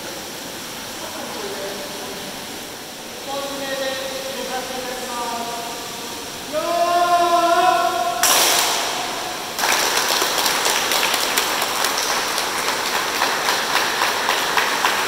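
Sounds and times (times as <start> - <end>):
man's long drawn-out call: 6.5 - 8.2
group clapping in unison: 8.2 - 15.0
applause: 9.6 - 15.0.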